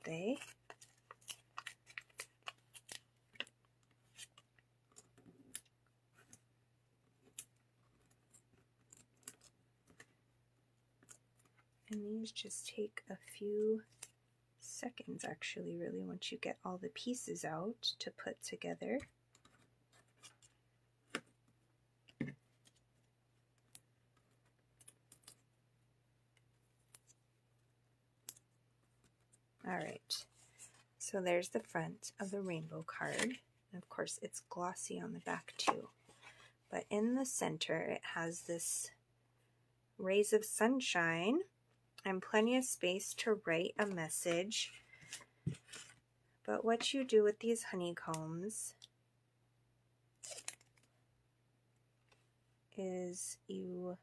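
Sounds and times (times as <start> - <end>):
cardstock rustling and clicking: 0.3 - 6.5.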